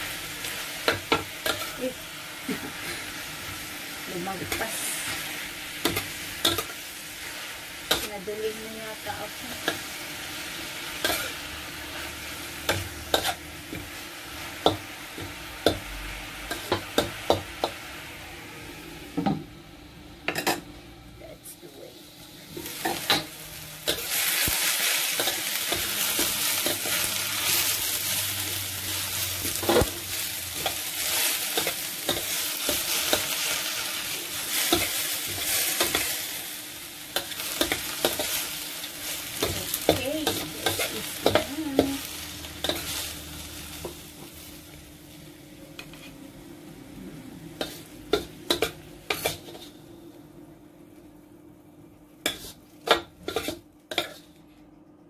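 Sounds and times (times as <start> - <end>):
vegetables sizzling in a wok: 0.0 - 54.6
metal spatula scraping a pan: 53.2 - 54.4.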